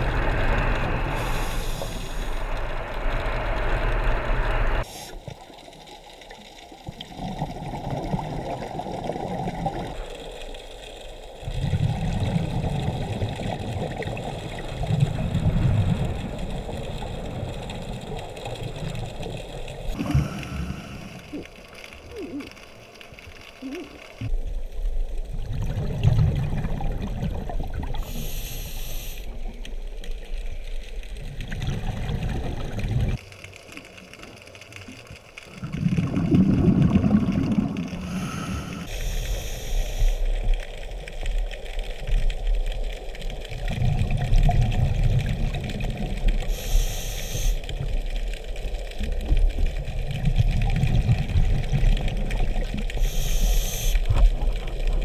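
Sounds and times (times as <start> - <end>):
regulator hiss: 1.0 - 5.3, 28.0 - 29.4, 38.0 - 40.6, 46.4 - 47.8, 53.0 - 54.2
exhaled bubbles underwater: 6.4 - 10.2, 11.4 - 22.7, 23.6 - 28.6, 31.1 - 33.2, 34.9 - 39.0, 40.3 - 55.0.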